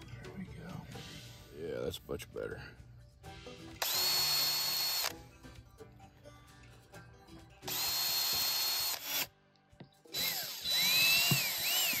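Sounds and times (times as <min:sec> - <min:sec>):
cordless drill whine: 0:03.8 - 0:05.1, 0:07.7 - 0:09.3, 0:10.1 - 0:12.0.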